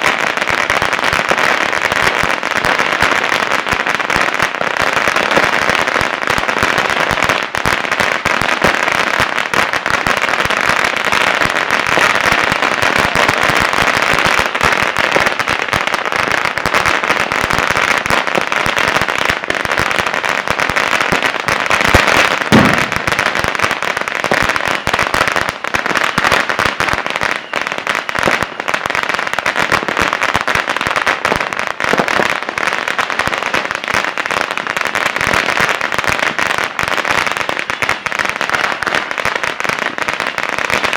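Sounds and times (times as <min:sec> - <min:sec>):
firecrackers crackling: 0:00.0 - 0:40.9
loud bang: 0:22.5 - 0:23.1.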